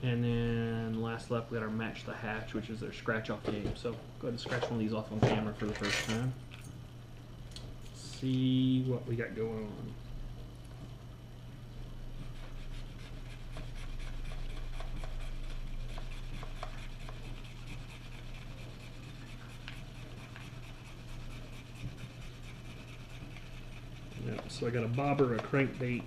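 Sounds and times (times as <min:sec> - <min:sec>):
scratch card being scratched: 0:12.2 - 0:26.0.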